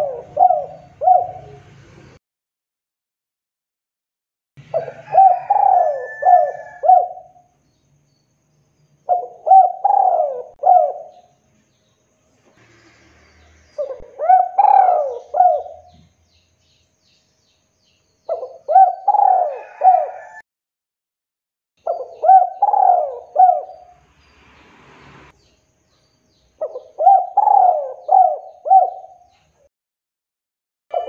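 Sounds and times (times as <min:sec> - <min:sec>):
dove cooing: 0:00.0 - 0:01.8, 0:04.7 - 0:07.5, 0:09.1 - 0:11.3, 0:13.8 - 0:16.1, 0:18.3 - 0:20.4, 0:21.8 - 0:24.0, 0:26.6 - 0:29.3.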